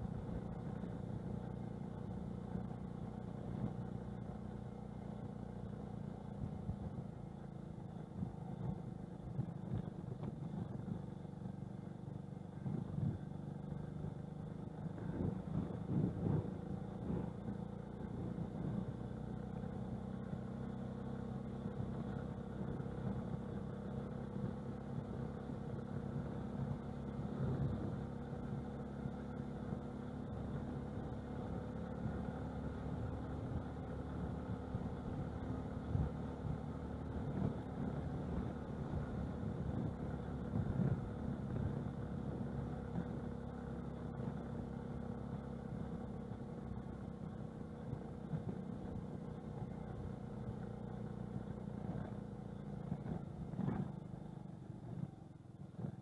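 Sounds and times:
rattles from road bumps: 0:00.0 - 0:13.7, 0:47.9 - 0:56.0
moped engine running: 0:00.0 - 0:56.0.

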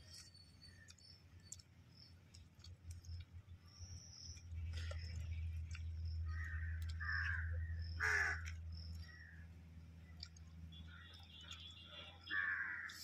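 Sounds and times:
steady low hum: 0:00.0 - 0:13.0
crows cawing: 0:06.3 - 0:09.4, 0:12.3 - 0:13.0.

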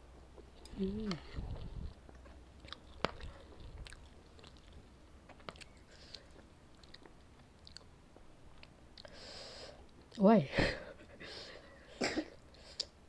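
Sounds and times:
mouth chewing noodles: 0:00.3 - 0:07.9.

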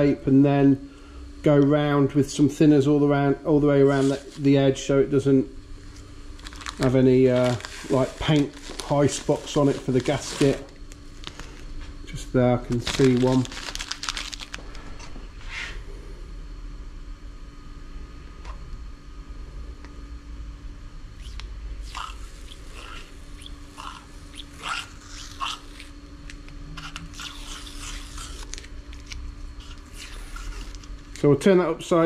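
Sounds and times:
masking tape being peeled: 0:12.7 - 0:14.6, 0:23.8 - 0:31.2.

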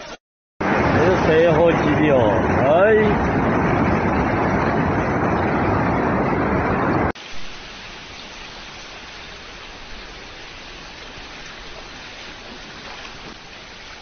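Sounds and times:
floodwater rushing: 0:00.6 - 0:14.0
hiss of flowing water: 0:07.2 - 0:14.0.

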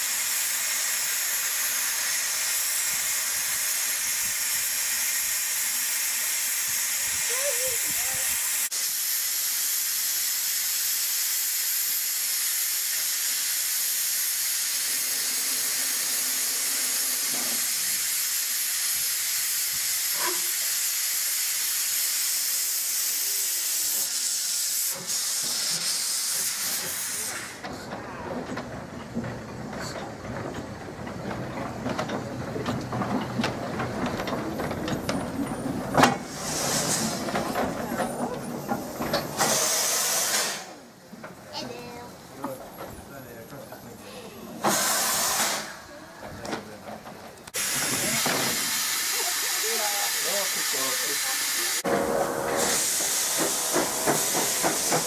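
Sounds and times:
steam locomotive hissing steam: 0:00.0 - 0:55.0
engine knocks and clanks: 0:27.6 - 0:39.6, 0:41.0 - 0:44.7, 0:45.9 - 0:48.6.

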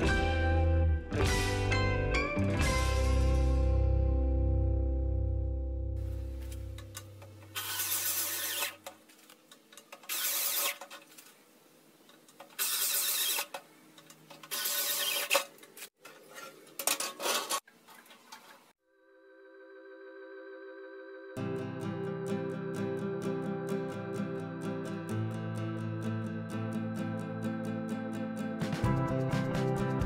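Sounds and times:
guitar music: 0:00.0 - 0:07.2, 0:21.4 - 0:30.0
electric drill bursts on steel: 0:07.6 - 0:08.8, 0:10.1 - 0:10.8, 0:12.6 - 0:13.5.

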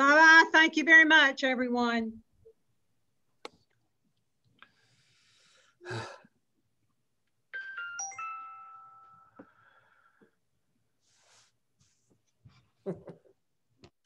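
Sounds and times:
electronic chime: 0:07.6 - 0:09.4.

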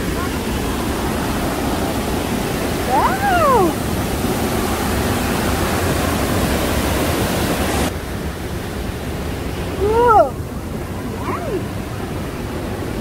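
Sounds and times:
water rushing over rocks: 0:00.0 - 0:13.0
person exclaiming: 0:02.9 - 0:03.8, 0:09.8 - 0:10.4, 0:11.1 - 0:11.7.

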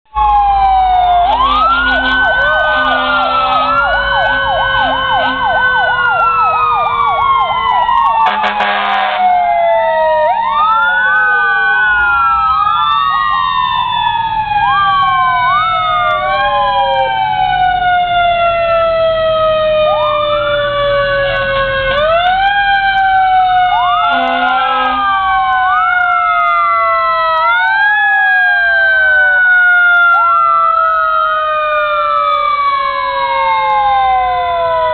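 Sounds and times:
fire truck sirens wailing: 0:00.1 - 0:34.9
siren yelp warble: 0:00.1 - 0:34.9
truck engines rumbling: 0:00.1 - 0:34.9
short horn blasts: 0:01.5 - 0:04.5, 0:08.2 - 0:09.2, 0:24.1 - 0:25.0.

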